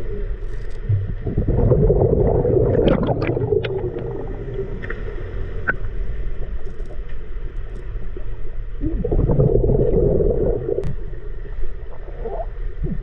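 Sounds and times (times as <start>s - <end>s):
sharp clicks underwater: 0.3s - 1.4s, 2.5s - 9.3s, 10.4s - 11.0s
underwater bubbles rumbling: 0.8s - 6.6s, 8.1s - 13.0s.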